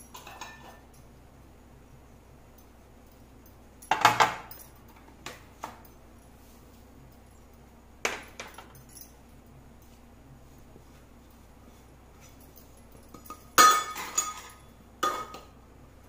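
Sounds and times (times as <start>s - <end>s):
steel bowls clinking: 13.0s - 15.5s.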